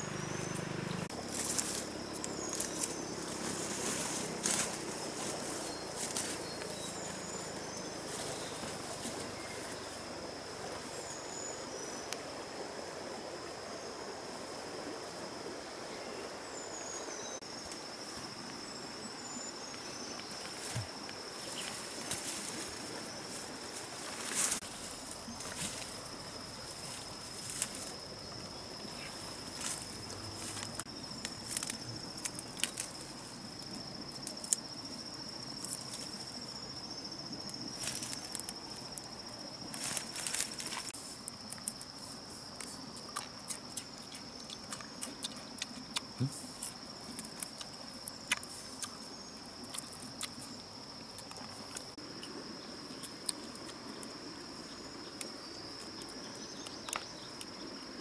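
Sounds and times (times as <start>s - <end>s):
leaves and twigs crackling: 0.0s - 11.2s, 19.6s - 52.0s
insects trilling: 0.0s - 58.0s.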